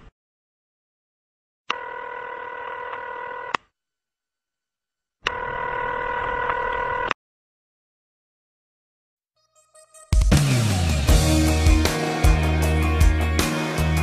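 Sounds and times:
electronic telephone ringing: 0:01.7 - 0:03.6, 0:05.3 - 0:07.2.

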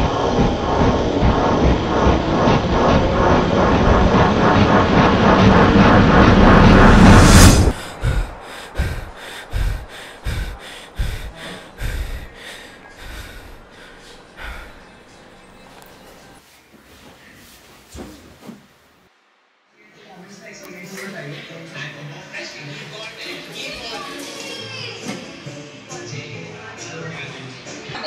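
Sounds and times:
loud rushing roar: 0:00.0 - 0:14.8
soft low pulses: 0:00.0 - 0:15.0.

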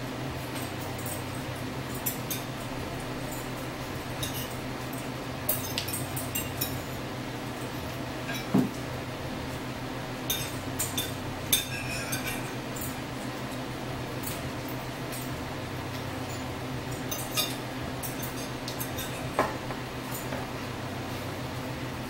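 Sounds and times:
steady low hum: 0:00.0 - 0:22.0
cutlery clinking on plates: 0:08.3 - 0:08.8, 0:10.3 - 0:13.0, 0:17.0 - 0:20.4.

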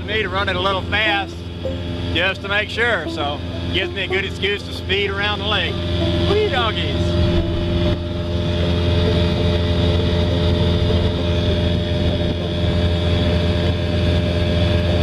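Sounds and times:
outboard motor running fast: 0:00.0 - 0:15.0
wind and water rushing: 0:00.0 - 0:15.0.

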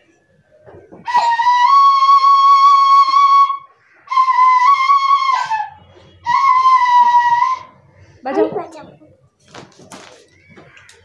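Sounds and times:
bamboo flute long notes: 0:01.0 - 0:07.9.

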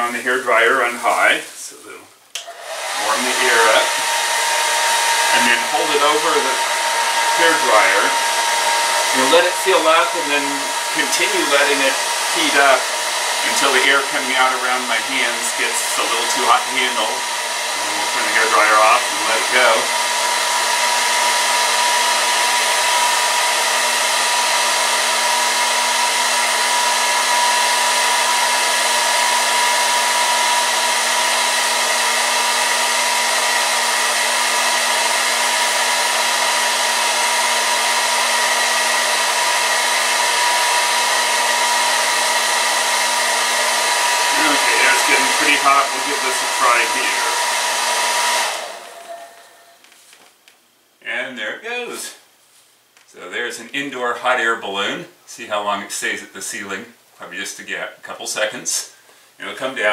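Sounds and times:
hair dryer blowing: 0:02.4 - 0:50.2.

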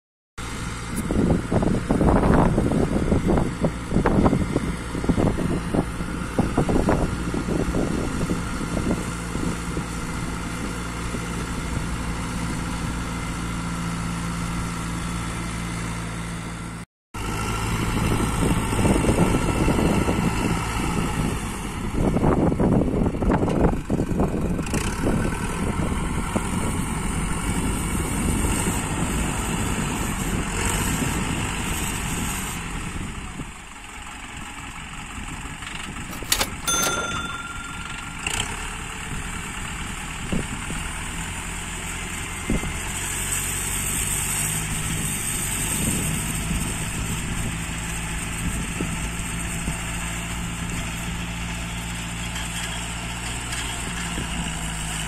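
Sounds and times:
tractor engine under load: 0:23.0 - 0:55.0.

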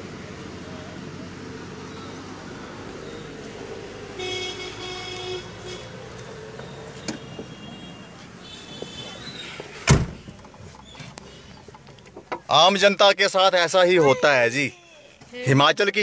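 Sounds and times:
street traffic noise: 0:00.0 - 0:16.0
vehicle horn: 0:04.1 - 0:06.1, 0:07.0 - 0:09.5
car door slamming: 0:07.0 - 0:07.6, 0:08.6 - 0:10.4.

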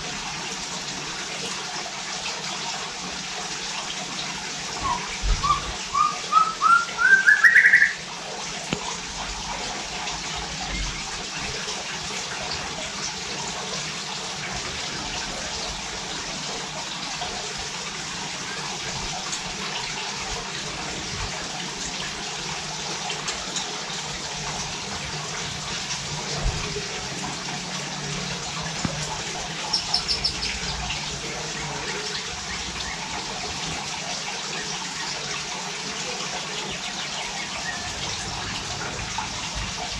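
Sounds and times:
bird singing whistled notes: 0:04.8 - 0:08.0
bird trilling: 0:04.8 - 0:08.0, 0:29.7 - 0:30.8.

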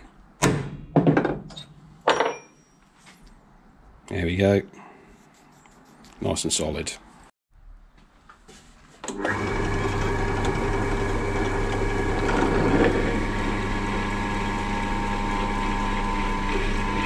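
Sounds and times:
pillar drill motor hum: 0:09.1 - 0:17.0
drill bit cutting steel: 0:09.5 - 0:14.0.

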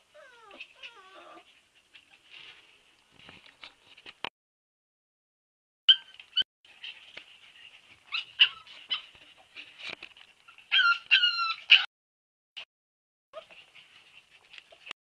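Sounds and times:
puppy whimpering: 0:00.0 - 0:01.5, 0:08.1 - 0:09.1, 0:10.5 - 0:11.9, 0:13.4 - 0:14.9
puppy whining: 0:00.0 - 0:02.3, 0:05.9 - 0:09.2, 0:10.4 - 0:11.9, 0:13.4 - 0:15.0.

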